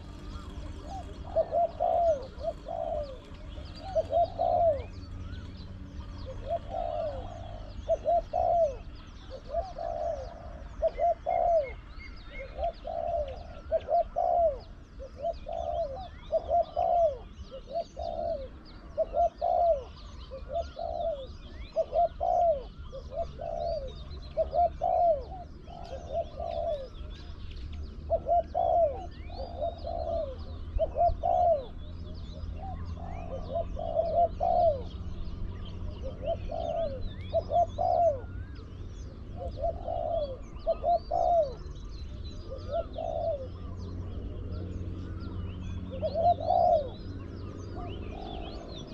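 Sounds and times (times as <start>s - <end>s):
dove cooing: 0.0s - 48.9s
small birds chirping faintly: 0.0s - 48.9s.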